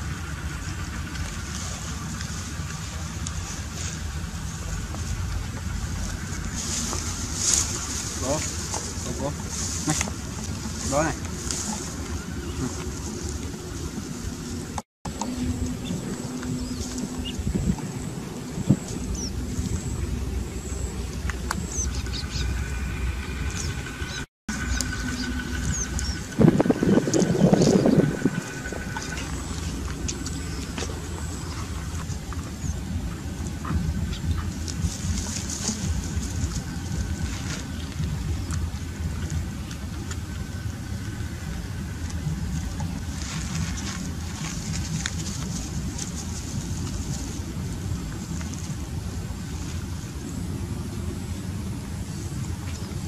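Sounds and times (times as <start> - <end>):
wind rumbling on microphone: 0.0 - 53.0
bird chirps: 15.2 - 35.1.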